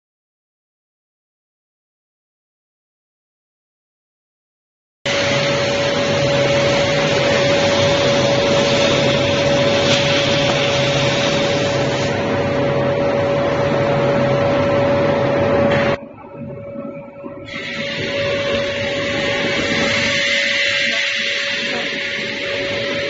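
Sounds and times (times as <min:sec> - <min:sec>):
cutting torch hissing: 0:05.1 - 0:12.6, 0:17.5 - 0:23.0.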